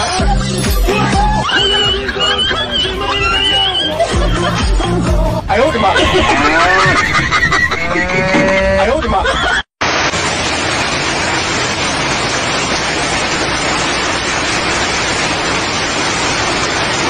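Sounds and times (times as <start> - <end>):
heavy rain hiss: 9.8 - 17.0.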